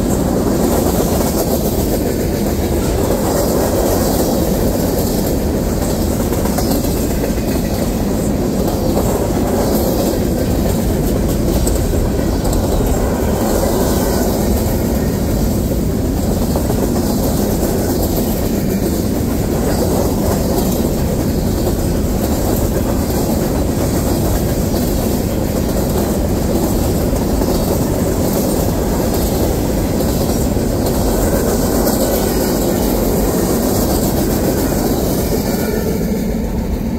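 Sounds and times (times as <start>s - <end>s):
freight train wheels on rails: 0.0s - 36.9s.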